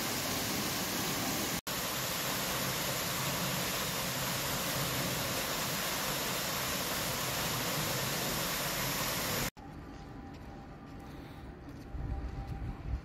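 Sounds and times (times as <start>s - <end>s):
waterfall rushing into pool: 0.0s - 9.6s.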